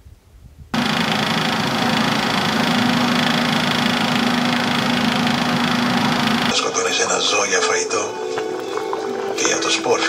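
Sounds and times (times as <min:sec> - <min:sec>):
range hood fan running: 0:00.7 - 0:07.3.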